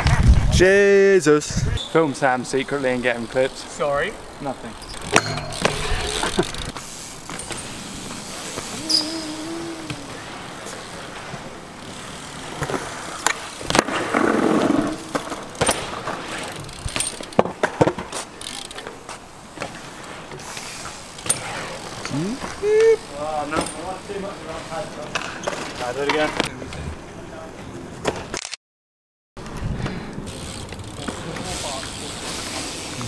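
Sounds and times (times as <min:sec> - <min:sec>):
bike tyres rolling on concrete: 0:00.0 - 0:28.3, 0:29.4 - 0:33.0
bike clacking and knocking: 0:04.7 - 0:08.9, 0:11.4 - 0:20.5, 0:21.1 - 0:24.3, 0:29.4 - 0:33.0.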